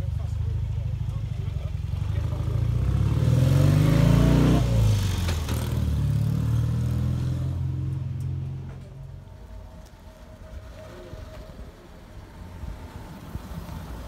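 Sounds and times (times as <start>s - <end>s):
vehicle engine revving: 1.7s - 8.7s.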